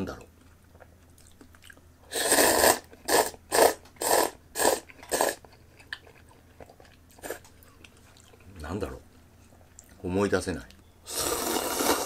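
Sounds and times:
person slurping noodles: 2.1s - 5.4s, 11.1s - 12.0s.

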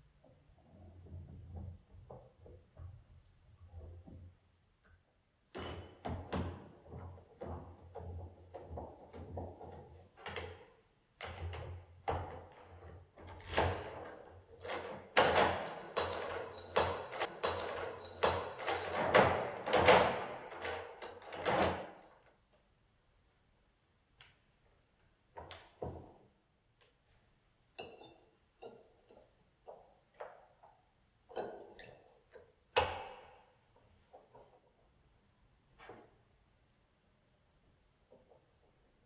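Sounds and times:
key turning in door lock: 12.4s - 22.2s.

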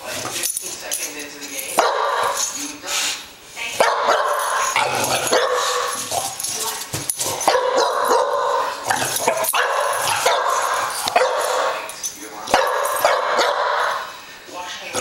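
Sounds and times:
dog barking: 1.8s - 2.4s, 3.8s - 6.0s, 7.4s - 11.9s, 12.5s - 14.1s.

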